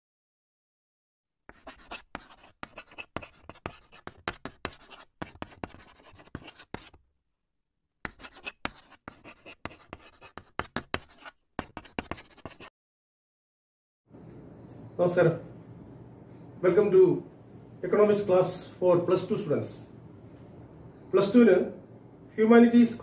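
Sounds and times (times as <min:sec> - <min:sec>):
chalk scratching on blackboard: 0:01.5 - 0:07.0, 0:08.0 - 0:12.7.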